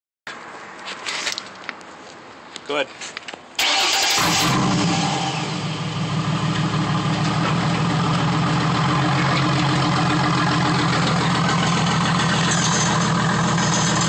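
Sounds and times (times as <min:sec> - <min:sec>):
car engine idling: 0:03.6 - 0:14.0.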